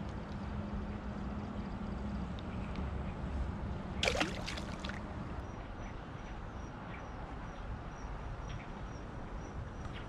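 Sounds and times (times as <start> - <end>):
fish splashing in shallows: 4.0 - 5.1.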